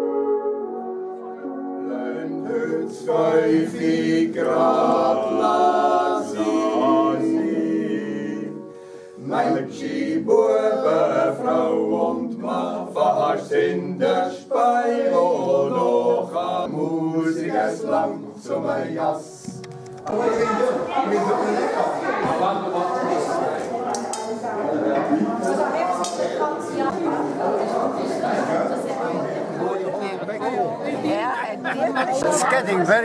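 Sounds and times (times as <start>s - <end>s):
men singing a cappella in harmony: 1.7s - 19.6s.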